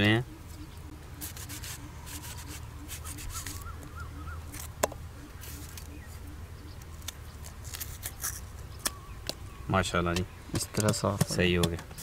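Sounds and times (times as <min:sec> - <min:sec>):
birds chirping faintly: 0:00.0 - 0:12.0
knife peeling onion skin: 0:07.0 - 0:09.0.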